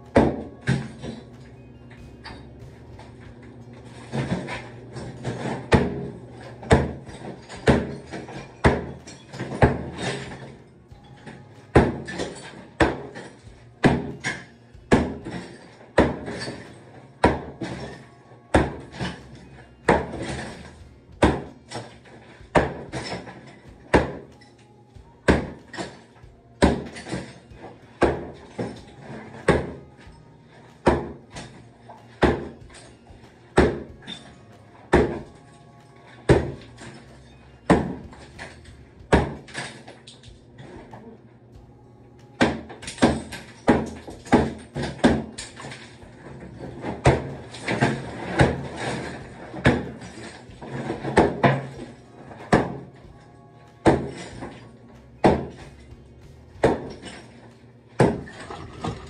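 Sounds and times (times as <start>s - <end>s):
sledgehammer pounding tile wall: 0.0s - 35.5s, 36.2s - 37.1s, 37.7s - 41.1s, 42.4s - 53.2s, 53.8s - 54.6s, 55.2s - 59.0s
debris chunks clattering down: 55.2s - 59.0s.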